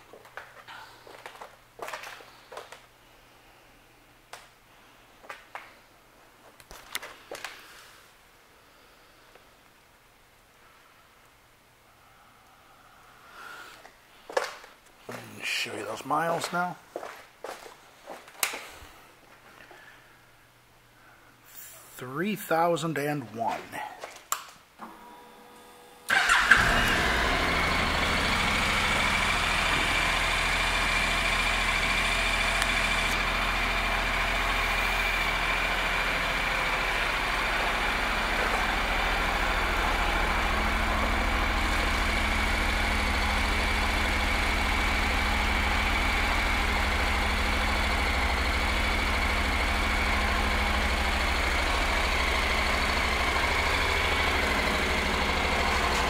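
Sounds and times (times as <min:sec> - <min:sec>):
motorcycle engine starting and idling: 0:24.8 - 0:56.0.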